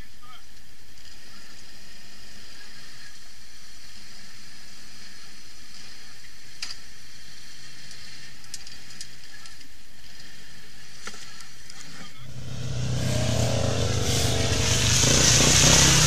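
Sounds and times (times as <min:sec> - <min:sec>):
atv engine running faintly: 0:12.2 - 0:16.0
steady hiss: 0:12.2 - 0:16.0.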